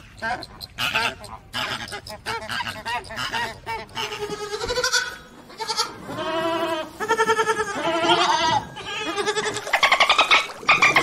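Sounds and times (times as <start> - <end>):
lamb bleating: 4.0 - 9.7.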